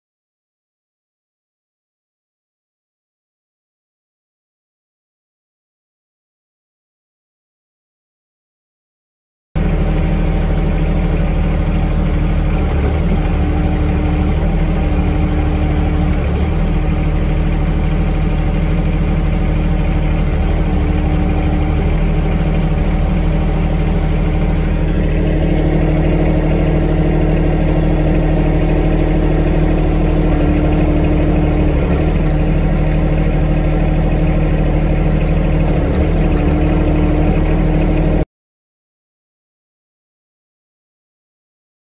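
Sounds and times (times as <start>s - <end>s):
hydraulics hum: 9.6s - 38.2s
tractor diesel engine running: 9.6s - 38.2s.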